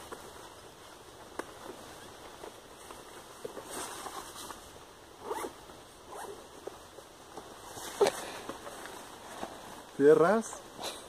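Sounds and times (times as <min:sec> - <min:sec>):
fabric rustling: 0:00.0 - 0:05.5, 0:07.5 - 0:10.4
zip being pulled: 0:05.2 - 0:06.4.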